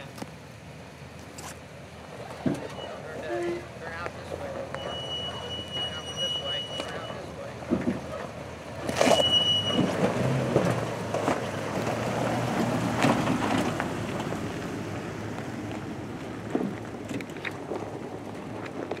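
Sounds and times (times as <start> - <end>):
truck engine at low revs: 0.0 - 19.0
brief high squeal: 4.8 - 7.3, 9.0 - 9.9
knocks from tyres and body: 8.8 - 14.5, 15.7 - 19.0.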